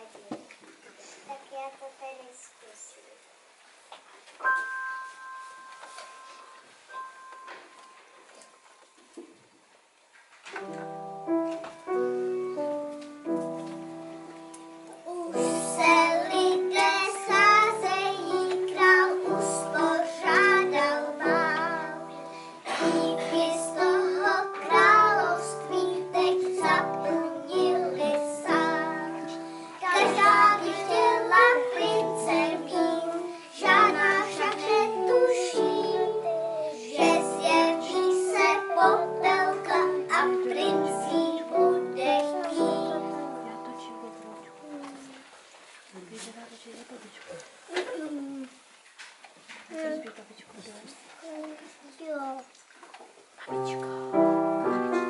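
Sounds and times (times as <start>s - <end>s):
piano: 4.3s - 45.5s, 53.4s - 55.0s
children singing: 15.4s - 43.2s.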